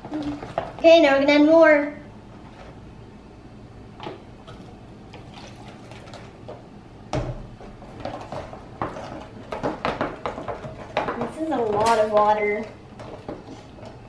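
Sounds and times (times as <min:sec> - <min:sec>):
slime squelching while stirred: 0:04.0 - 0:06.6, 0:07.6 - 0:14.0
water pouring into plastic tub: 0:05.1 - 0:06.3.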